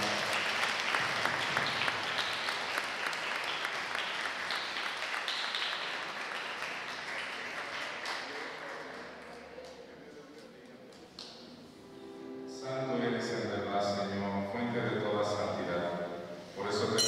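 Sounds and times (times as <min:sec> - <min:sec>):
congregation applauding: 0:00.0 - 0:11.6.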